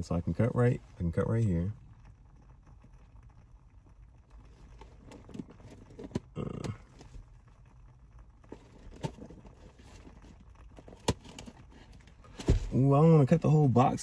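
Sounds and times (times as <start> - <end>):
cardboard rustle: 8.5 - 12.9.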